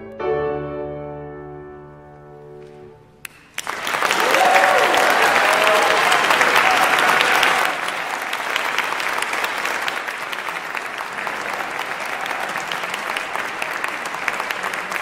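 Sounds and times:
audience applauding: 0:03.2 - 0:15.0.

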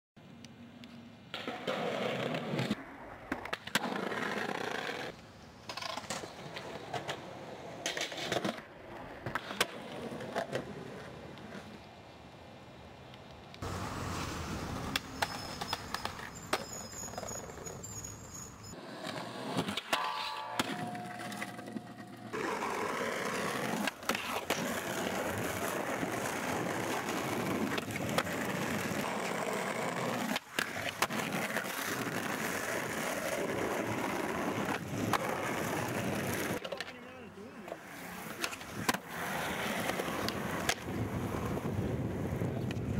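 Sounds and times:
skateboard wheels rolling on concrete: 0:00.2 - 0:42.9
skateboard clacks: 0:14.9 - 0:17.7, 0:19.0 - 0:37.1, 0:37.7 - 0:42.9.

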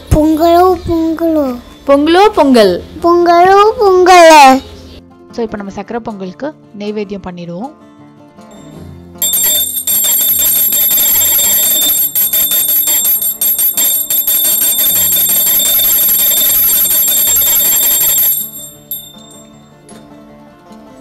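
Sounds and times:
brass bell ringing rapidly: 0:09.2 - 0:19.4.

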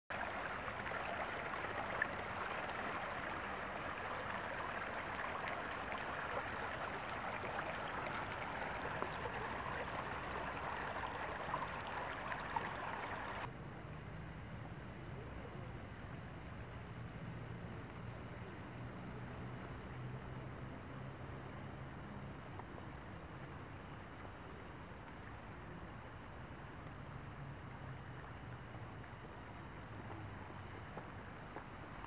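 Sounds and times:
faint small splashes: 0:00.1 - 0:13.5
stream flowing over rocks: 0:00.1 - 0:13.5.

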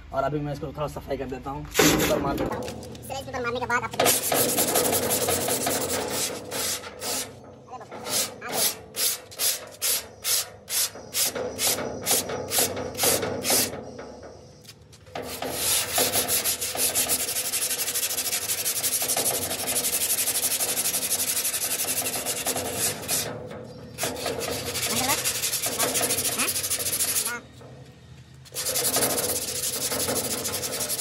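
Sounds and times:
sandpaper scraping rusty metal: 0:01.8 - 0:27.8, 0:28.4 - 0:31.0.

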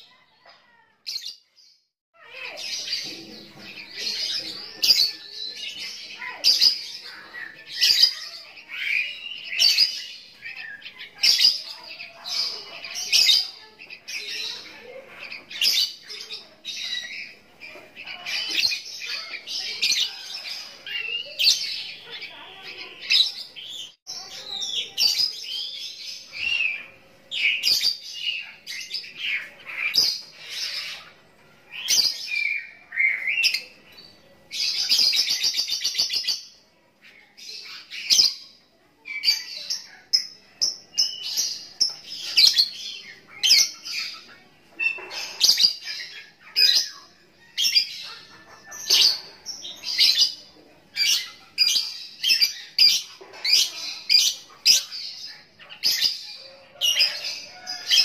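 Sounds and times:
lovebird chirping and singing: 0:00.0 - 0:58.0.

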